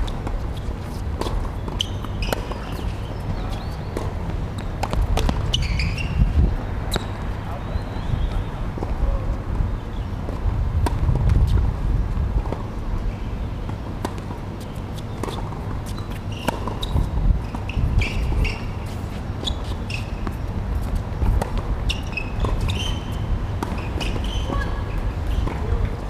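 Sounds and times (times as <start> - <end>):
tennis ball bouncing: 0.0 - 5.9, 13.7 - 26.0
sneaker squeaks: 0.1 - 10.1, 14.1 - 26.0
steady low rumble: 3.2 - 14.1
racket striking ball: 15.2 - 17.0, 22.4 - 25.7.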